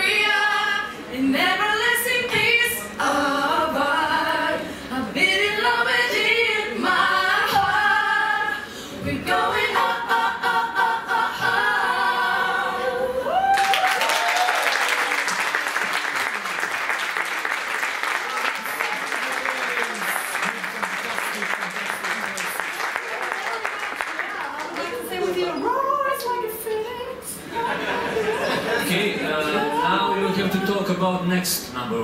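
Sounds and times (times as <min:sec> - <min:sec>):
voices singing in harmony: 0:00.0 - 0:13.5, 0:24.8 - 0:31.0
applause: 0:13.5 - 0:25.2.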